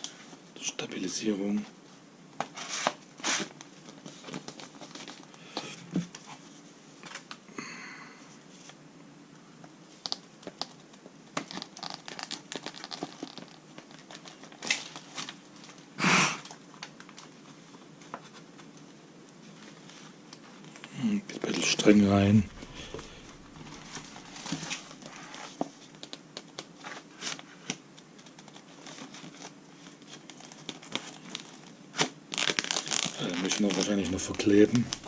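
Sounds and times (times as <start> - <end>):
rustling thump: 22.0 - 25.1.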